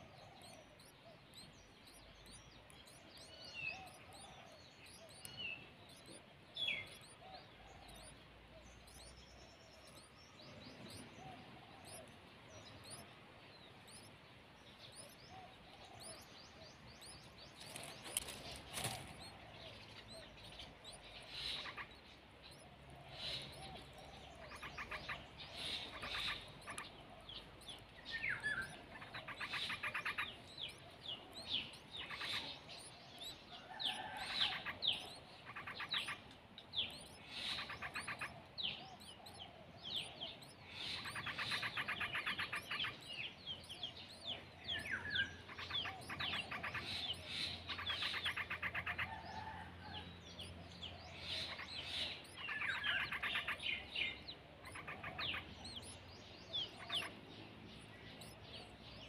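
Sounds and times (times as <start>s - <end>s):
bulbuls chirping: 0.0s - 59.0s.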